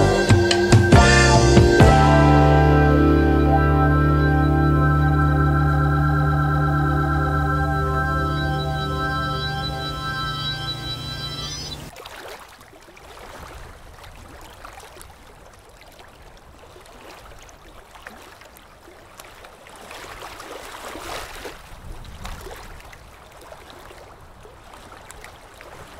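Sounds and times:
waves breaking on a beach: 11.9 - 25.9.

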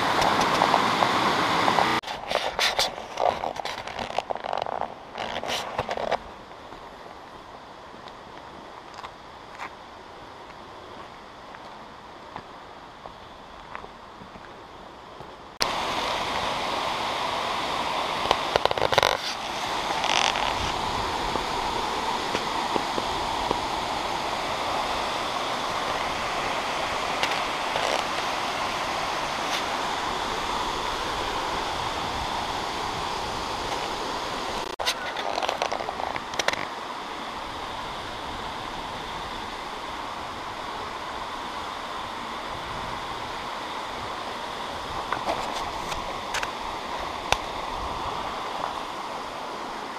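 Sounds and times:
waterfall rushing: 0.0 - 2.0, 15.6 - 49.9.

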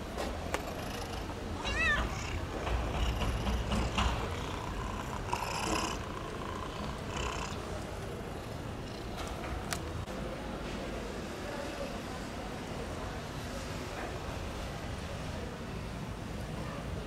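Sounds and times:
cat meowing: 1.6 - 2.4.

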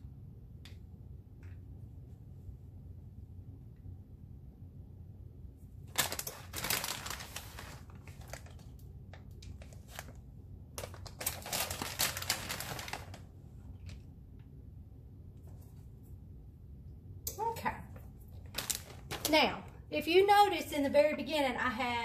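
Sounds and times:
plastic bag crinkling: 5.9 - 10.2, 10.8 - 14.0, 18.3 - 19.6.

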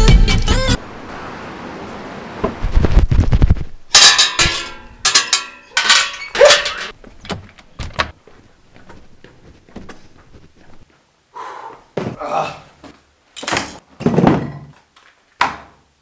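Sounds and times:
footsteps: 2.5 - 11.0
door handles clattering: 4.0 - 8.2.

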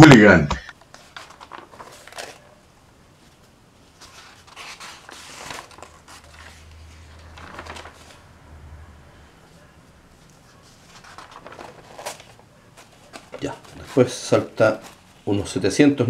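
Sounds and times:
faint low hum: 0.0 - 16.0
magazine pages rustling: 0.8 - 2.6, 3.2 - 8.6, 9.5 - 15.7
page turning: 0.8 - 2.6, 3.2 - 8.3, 10.2 - 15.6.

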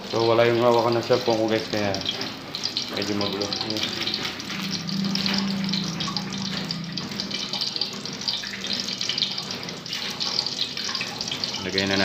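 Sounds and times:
oil sizzling in a wok: 0.0 - 12.0
low hum: 3.8 - 9.7.

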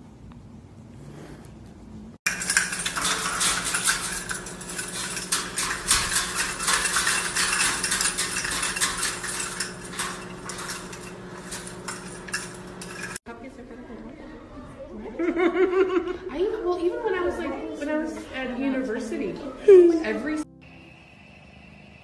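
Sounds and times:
plastic toys clattering: 2.3 - 13.2.

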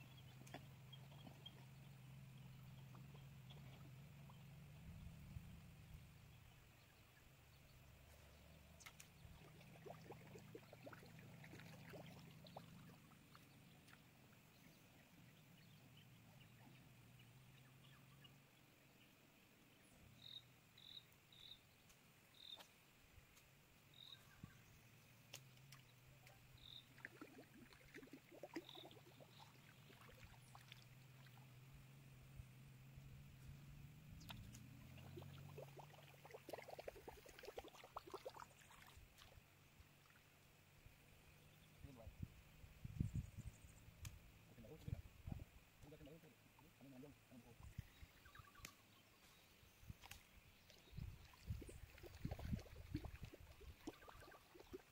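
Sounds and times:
low steady hum: 0.0 - 20.2, 29.0 - 36.2
faint clicks: 8.8 - 9.2, 44.0 - 44.2.

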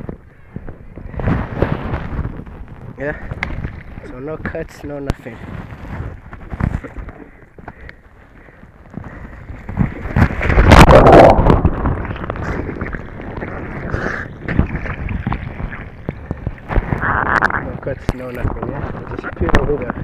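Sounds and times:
water sloshing: 9.1 - 19.0.

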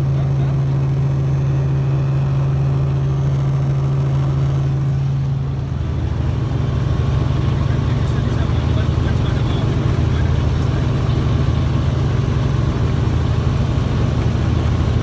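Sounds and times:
helicopter engine and rotor drone: 0.0 - 15.0.

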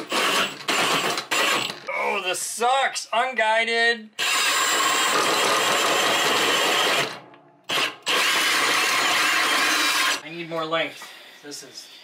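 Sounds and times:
right-angle drill cutting wood: 0.0 - 1.7, 4.2 - 10.2.

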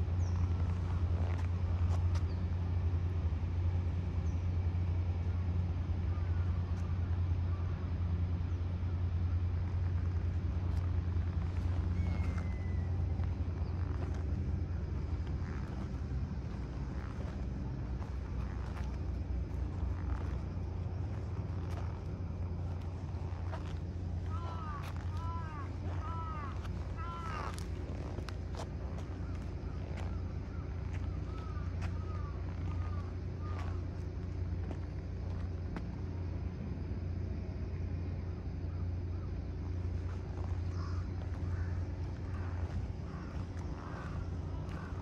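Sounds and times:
low engine drone: 0.0 - 45.0.

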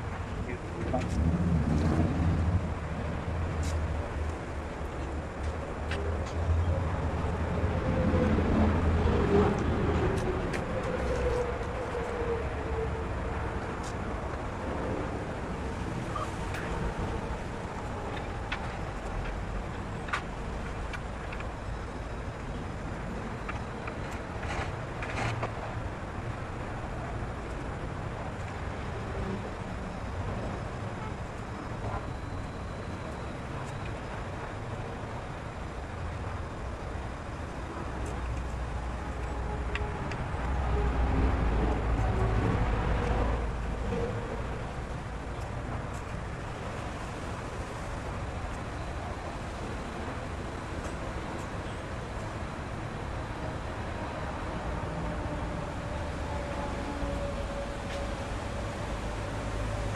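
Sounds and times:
vehicle passing with low rumble: 0.0 - 20.9
distant road traffic: 0.0 - 59.9.

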